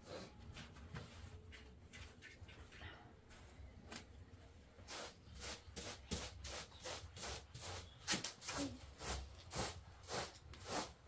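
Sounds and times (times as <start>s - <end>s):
hand broom sweeping floor: 4.8s - 11.0s.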